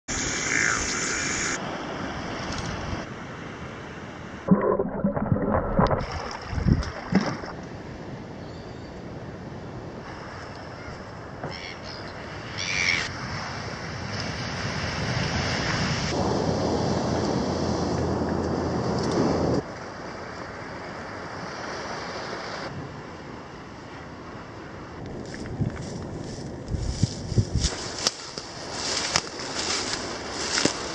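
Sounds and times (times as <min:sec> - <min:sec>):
surf washing: 0:00.1 - 0:08.2, 0:09.7 - 0:23.2
wind on microphone: 0:04.5 - 0:07.6, 0:25.0 - 0:30.9.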